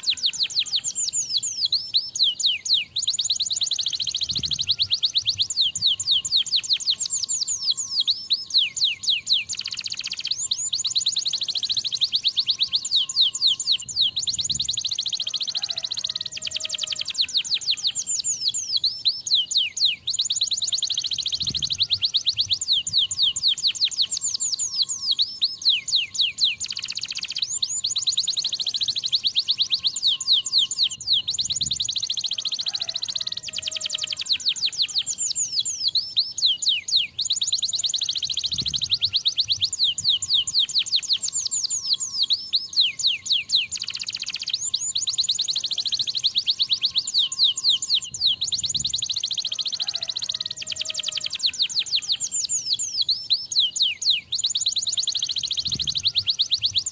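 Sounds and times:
canary singing fast trills: 0.0s - 56.9s.

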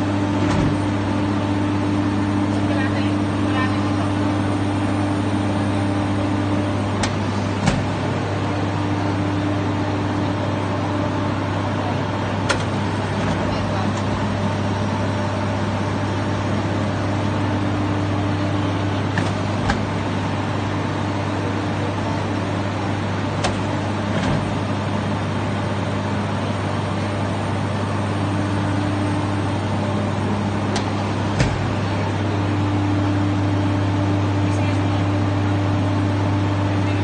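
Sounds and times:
low machine hum: 0.0s - 37.0s
sharp clicks and knocks: 12.5s - 14.2s, 23.4s - 24.5s, 30.7s - 31.8s.

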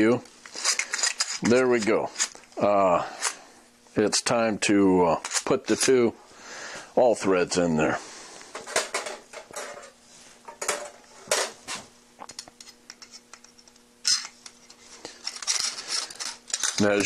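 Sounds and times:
metal rod clinking and scraping: 0.4s - 2.4s, 12.3s - 17.0s.

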